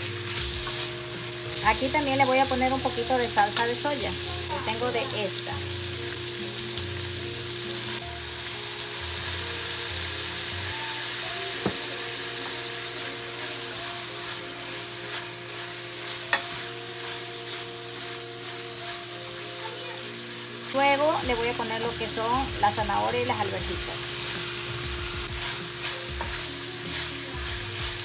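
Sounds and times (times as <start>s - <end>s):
food sizzling in oil: 0.0s - 28.0s
spatula stirring: 12.4s - 19.7s, 24.1s - 28.0s.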